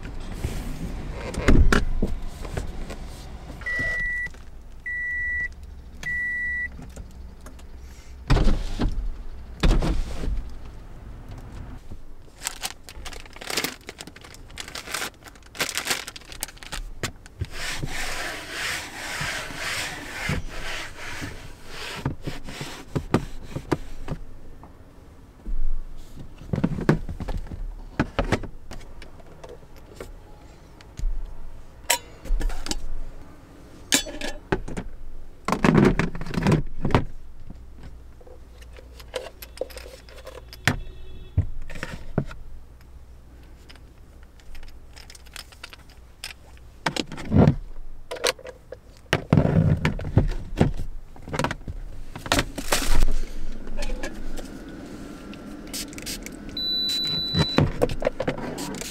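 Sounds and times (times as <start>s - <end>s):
short electronic beep: 3.7s - 4.3s, 56.6s - 57.6s.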